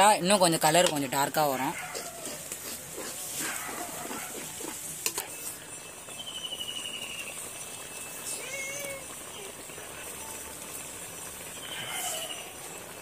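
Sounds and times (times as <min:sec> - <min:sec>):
ghee and sugar sizzling: 0:00.0 - 0:13.0
ladle scraping a pan: 0:01.7 - 0:05.6.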